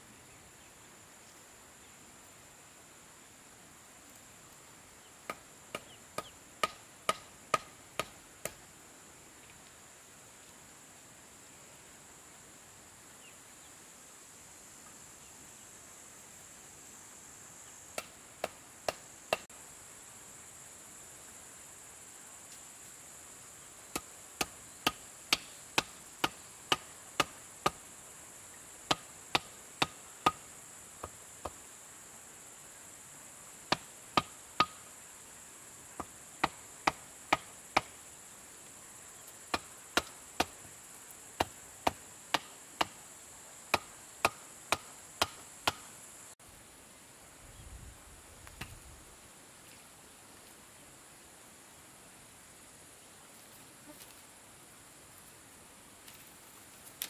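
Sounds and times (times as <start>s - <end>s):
high insect drone: 0.0s - 57.0s
hand tool chopping wood: 5.3s - 8.6s, 23.9s - 27.8s, 33.7s - 34.8s, 43.7s - 45.8s.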